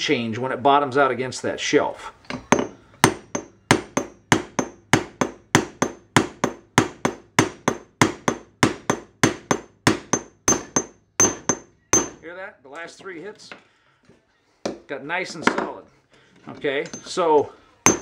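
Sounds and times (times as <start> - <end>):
hammer striking metal: 2.3 - 12.2.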